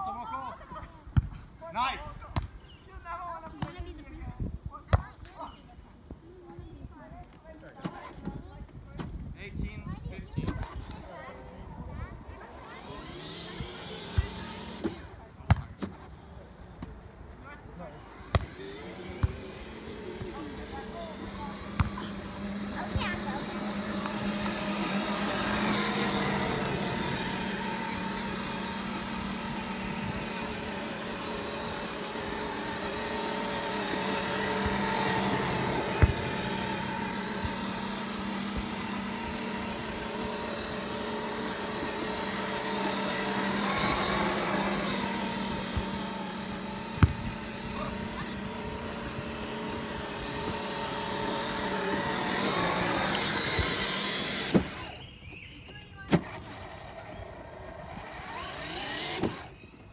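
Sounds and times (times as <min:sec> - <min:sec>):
motor hum: 0:00.0 - 0:59.9
volleyball being hit: 0:47.0 - 0:47.3.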